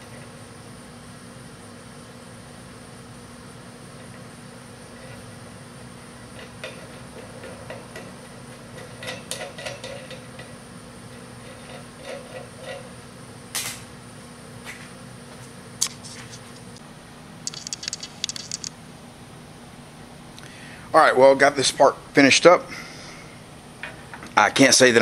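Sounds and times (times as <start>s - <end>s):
metal nut clicking on threads: 17.5s - 18.7s.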